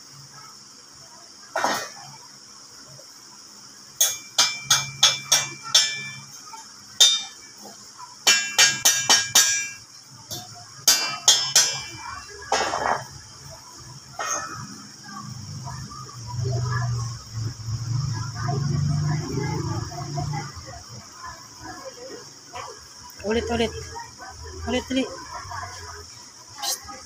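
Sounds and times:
hammer striking steel: 4.0 - 6.4, 7.0 - 7.4, 8.2 - 13.0.

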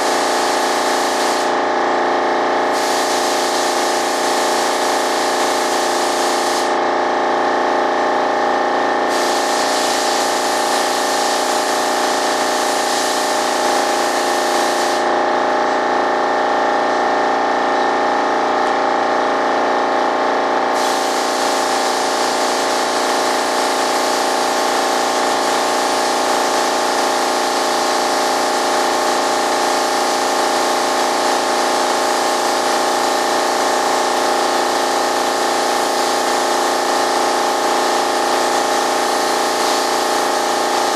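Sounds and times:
spray gun hissing: 0.0 - 1.6, 2.7 - 6.8, 9.1 - 15.1, 20.7 - 40.9
air compressor humming: 0.0 - 40.9.

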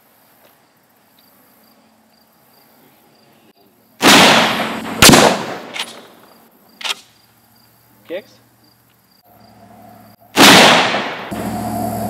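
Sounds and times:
rifle shot: 4.0 - 6.2, 10.3 - 11.4
sharp bang: 4.0 - 6.2, 10.4 - 11.5.

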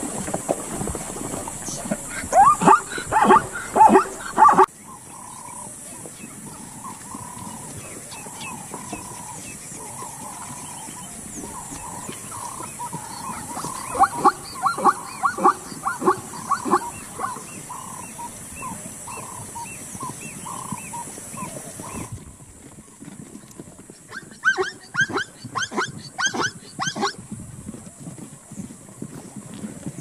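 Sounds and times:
steady high hiss: 0.0 - 5.5
zebras barking calls: 0.0 - 22.1, 24.1 - 27.2.

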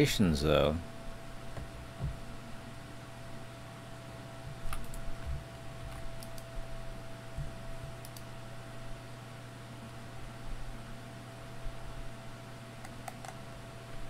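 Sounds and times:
faint steady whine: 0.0 - 14.0
steady low hum: 0.0 - 14.0
light clicks: 8.0 - 8.3.

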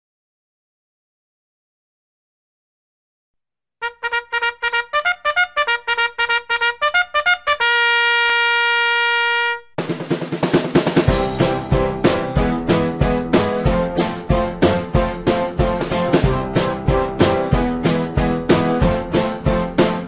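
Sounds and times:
trumpet fanfare: 3.8 - 9.8
full band with drums: 9.8 - 12.2.

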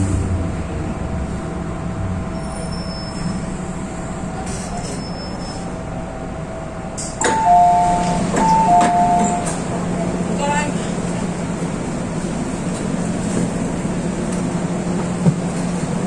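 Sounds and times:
train low hum: 0.0 - 16.0
two-tone door chime: 7.2 - 9.5.

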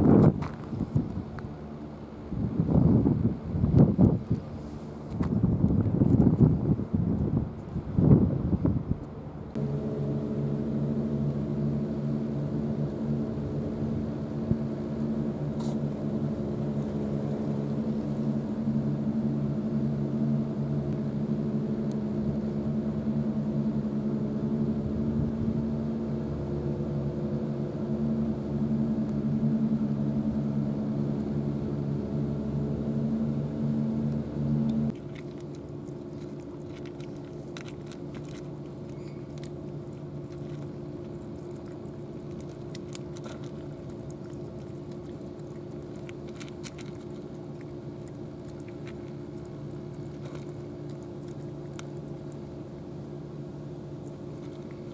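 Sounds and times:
low machine hum: 0.0 - 54.9
cats crunching dry kibble: 34.9 - 52.8, 54.0 - 54.9.

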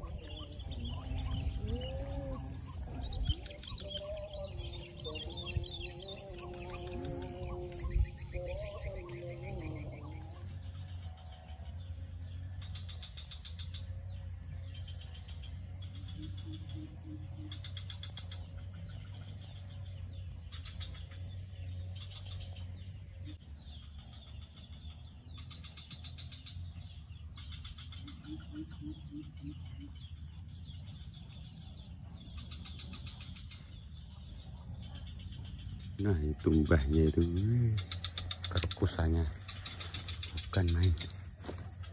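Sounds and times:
low pulsed calls: 0.0 - 12.8, 26.3 - 41.9
buzzy insect trills: 0.0 - 19.3, 23.3 - 41.9
steady low hum: 0.0 - 41.9.

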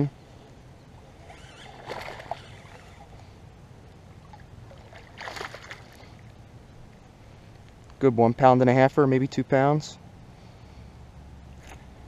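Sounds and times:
fish splashing at water surface: 4.3 - 6.2.

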